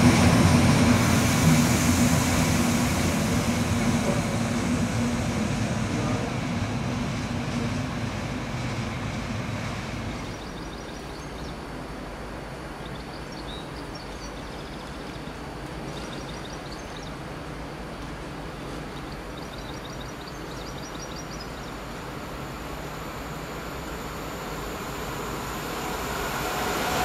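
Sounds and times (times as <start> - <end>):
electric train humming and rolling: 0.0 - 13.9, 17.2 - 27.0.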